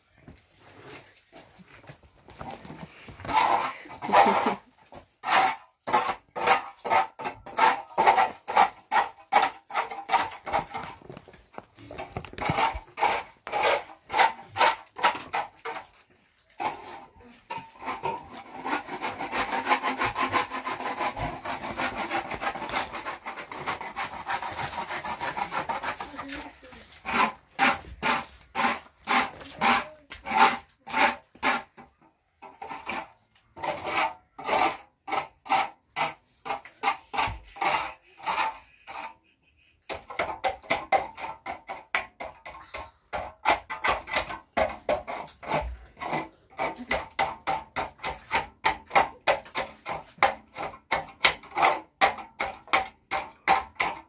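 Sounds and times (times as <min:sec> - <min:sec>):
rhythmic scraping strokes: 0:02.4 - 0:31.8.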